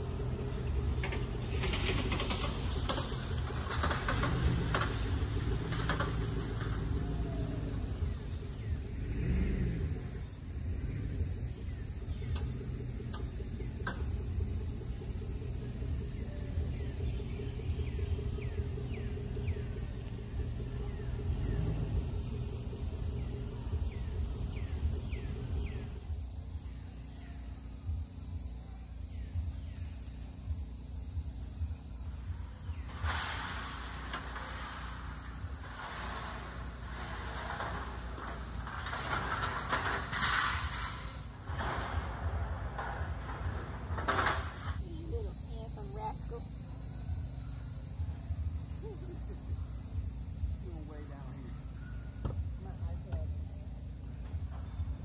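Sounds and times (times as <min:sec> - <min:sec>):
trailer clanking and rattling: 0:00.0 - 0:09.1, 0:09.7 - 0:27.0, 0:32.1 - 0:46.7
car engine running at low speed: 0:00.0 - 0:55.0
insects buzzing: 0:00.0 - 0:55.0
bird chirping: 0:22.5 - 0:27.5.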